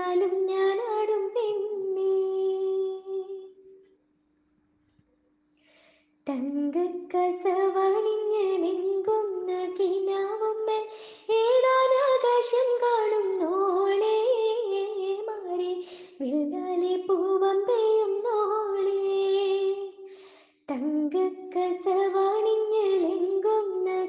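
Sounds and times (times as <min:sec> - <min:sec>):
woman singing: 0:00.0 - 0:03.6, 0:06.3 - 0:20.1, 0:20.7 - 0:24.0.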